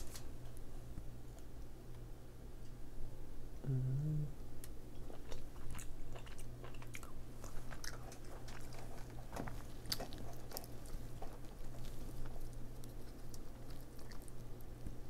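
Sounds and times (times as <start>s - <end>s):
low steady hum: 0.0s - 15.0s
chewing and lip-smacking: 4.6s - 15.0s.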